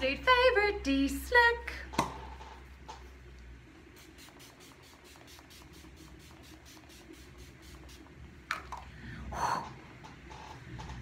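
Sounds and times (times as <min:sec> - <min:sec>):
spray bottle short sprays: 0:04.0 - 0:08.1.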